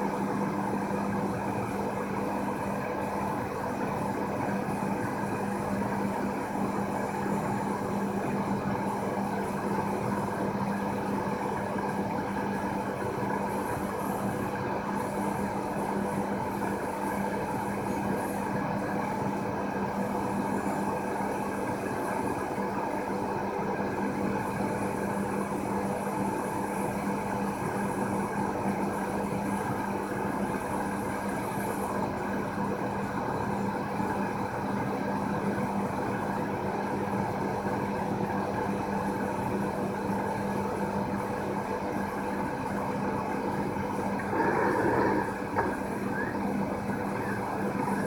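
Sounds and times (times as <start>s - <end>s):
machine hum: 43.6s - 48.0s.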